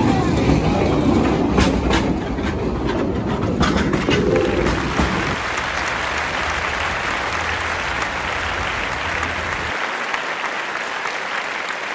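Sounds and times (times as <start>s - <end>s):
applause: 4.4s - 11.9s.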